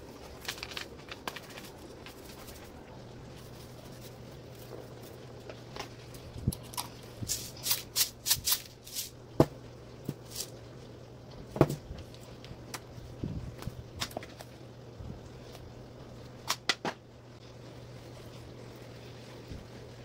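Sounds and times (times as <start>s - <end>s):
seasoning shakers rattling: 0.1s - 9.2s, 10.1s - 10.6s.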